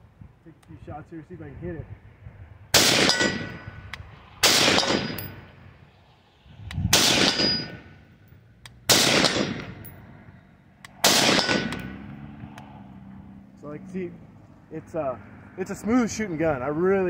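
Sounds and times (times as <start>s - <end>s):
rifle shots with rolling echo: 2.7s - 3.8s, 4.4s - 5.6s, 6.9s - 8.0s, 8.8s - 10.1s, 11.0s - 12.1s.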